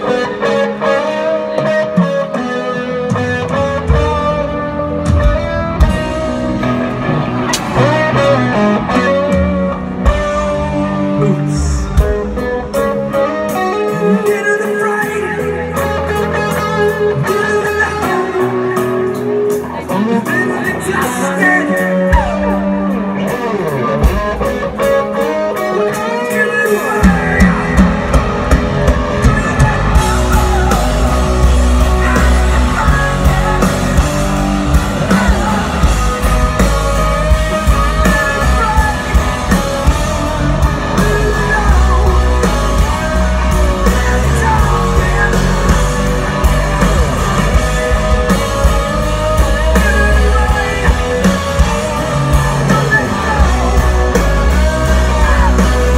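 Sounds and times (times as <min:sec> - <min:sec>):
bass guitar: 0:00.0 - 0:55.9
electric guitars: 0:00.0 - 0:55.9
steady drum beat: 0:26.8 - 0:55.9.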